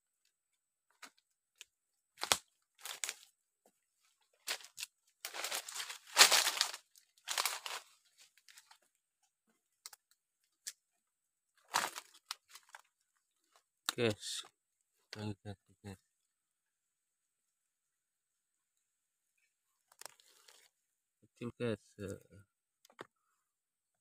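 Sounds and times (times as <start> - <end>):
dry leaves and twigs crunching: 1.0 - 3.4, 4.0 - 9.0, 11.6 - 13.7, 19.9 - 20.7.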